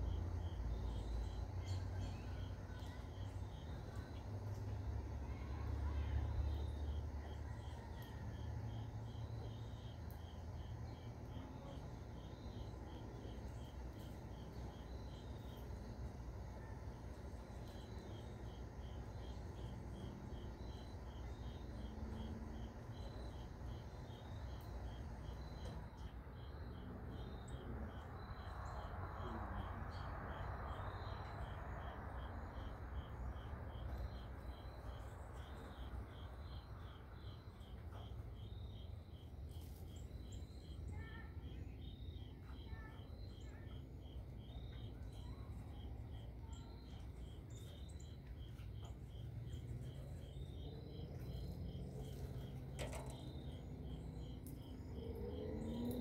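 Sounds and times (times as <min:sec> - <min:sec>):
insect chirping: 0:00.0 - 0:56.0
low steady rumble: 0:44.0 - 0:56.0.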